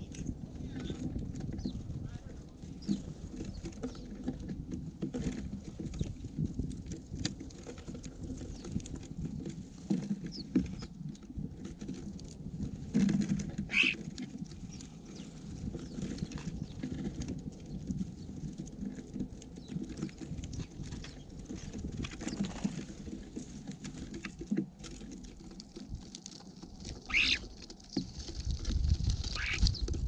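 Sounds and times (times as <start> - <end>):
birds pecking seeds: 0.0 - 30.0
short bird calls: 13.7 - 14.0, 27.1 - 27.5, 29.4 - 29.8.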